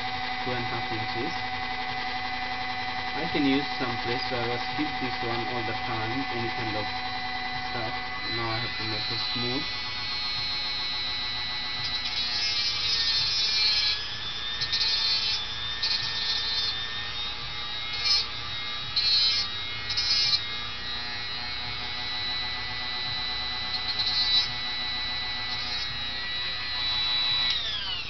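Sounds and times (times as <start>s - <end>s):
grinding metal screw: 0.0s - 22.4s, 23.0s - 28.0s
rotary tool whining: 0.0s - 28.0s.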